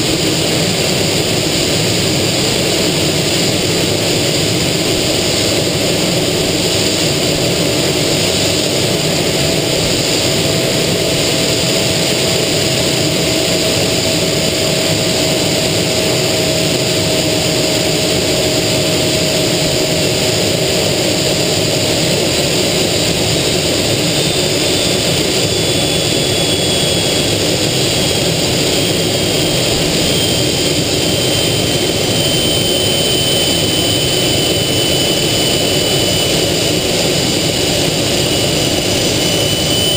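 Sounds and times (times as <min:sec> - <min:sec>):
jet engine and airflow roar: 0:00.0 - 0:39.9
low whine sliding down: 0:00.0 - 0:39.9
high whine sliding down: 0:00.1 - 0:39.9.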